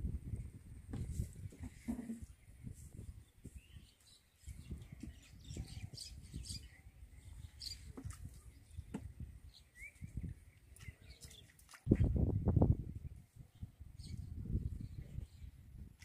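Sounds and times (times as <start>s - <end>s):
birds chirping: 1.9s - 12.2s.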